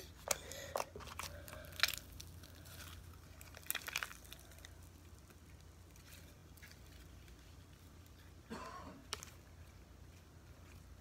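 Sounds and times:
low steady hum: 0:00.0 - 0:11.0
slime crackling: 0:01.0 - 0:08.4.

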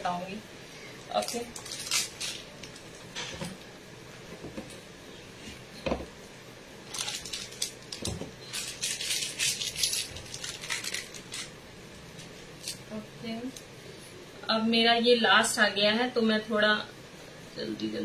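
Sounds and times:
piping bag crinkling: 0:06.9 - 0:11.6.

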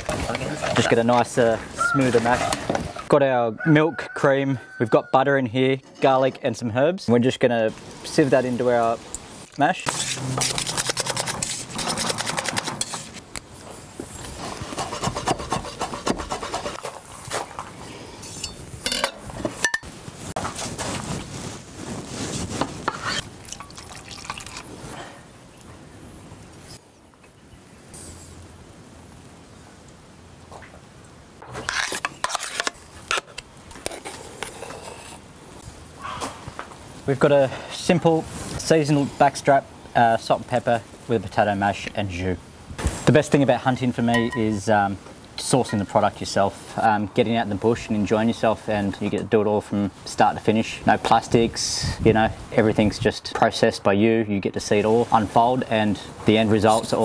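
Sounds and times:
metal spoon scraping a pan: 0:09.9 - 0:13.2, 0:31.6 - 0:33.2
whisk scraping metal saucepan: 0:09.9 - 0:13.2, 0:14.4 - 0:16.8.

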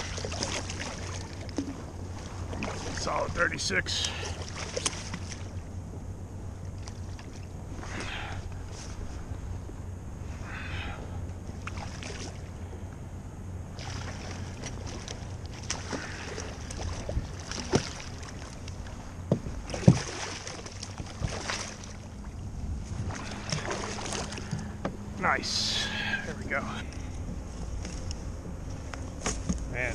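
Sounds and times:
fish splashing in water: 0:00.0 - 0:03.2, 0:04.0 - 0:05.6, 0:11.6 - 0:12.5, 0:13.8 - 0:19.0, 0:19.6 - 0:22.3, 0:22.9 - 0:24.8
wind rumble on microphone: 0:00.0 - 0:29.9.

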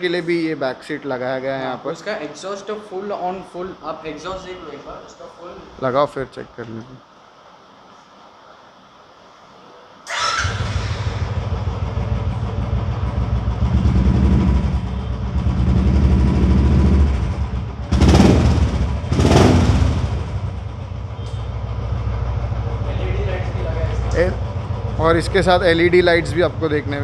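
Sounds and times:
motorcycle engine running: 0:10.4 - 0:27.0
motorcycle throttle blips: 0:10.6 - 0:27.0.

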